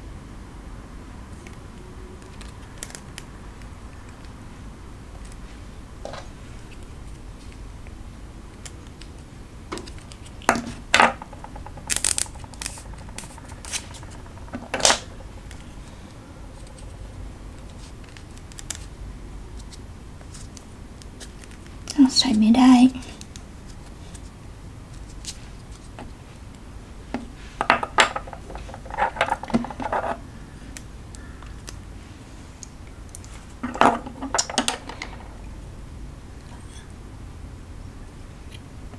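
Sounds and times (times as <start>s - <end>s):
pens clicking on wooden table: 9.7s - 15.6s, 33.6s - 35.3s.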